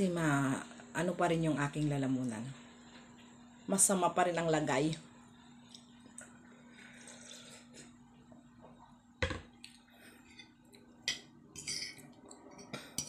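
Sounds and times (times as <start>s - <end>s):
faint steady hum: 0.0s - 13.0s
plastic tumbler knocking on table: 9.2s - 9.5s.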